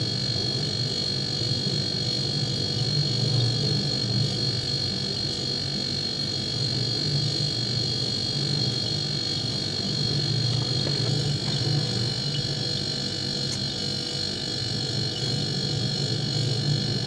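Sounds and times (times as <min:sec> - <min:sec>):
high whine: 0:08.0 - 0:17.0.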